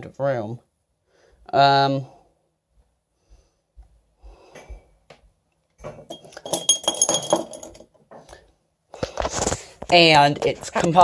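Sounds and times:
metallic clinking: 5.9s - 8.0s.

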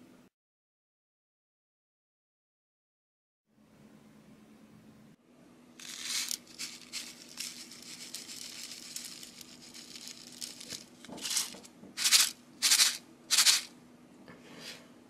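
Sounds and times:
foil packet crinkling: 5.8s - 13.7s
sprinkles shaken onto slime: 5.8s - 13.7s.

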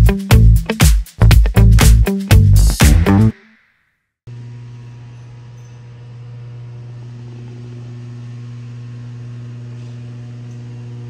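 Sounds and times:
music track: 0.0s - 3.5s.

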